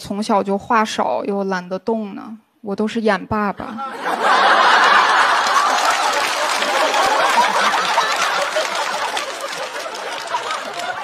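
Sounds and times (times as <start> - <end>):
audience laughing: 3.6 - 11.0
audience clapping: 4.2 - 11.0.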